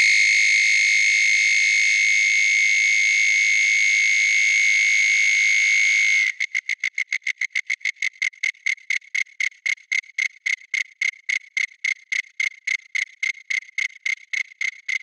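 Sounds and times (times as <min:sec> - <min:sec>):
synthesized cricket chirping: 0:06.3 - 0:15.0.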